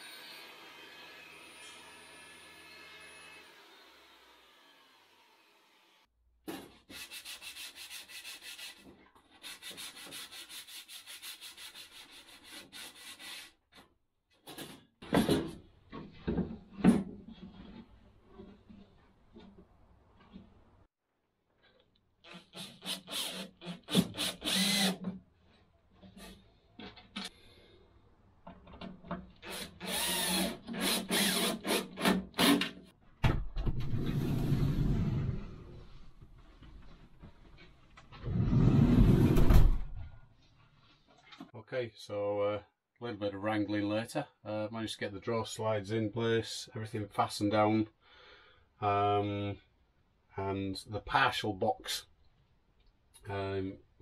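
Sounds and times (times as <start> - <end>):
sanding wooden board: 6.9 - 8.8, 9.4 - 13.5
cordless drill whining: 22.3 - 25.0, 29.4 - 31.8.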